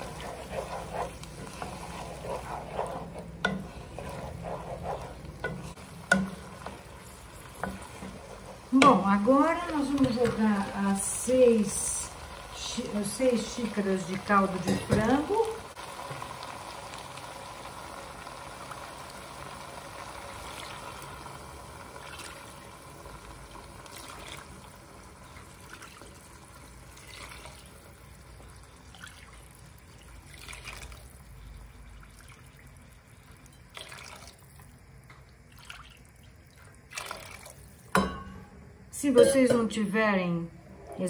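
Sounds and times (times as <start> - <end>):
liquid pouring and splashing: 22.0 - 22.7, 23.8 - 38.0.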